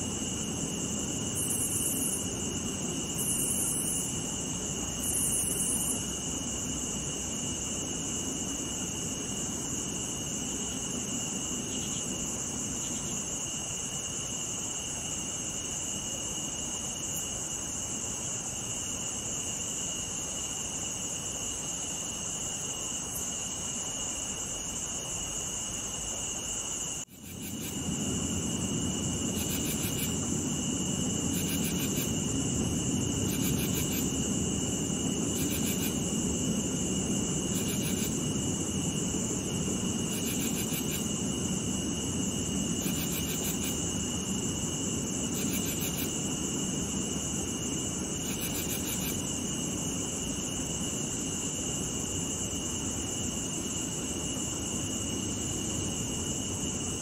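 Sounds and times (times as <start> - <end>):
crickets and cicadas trilling: 0.0 - 57.0
low rumble: 27.7 - 29.4.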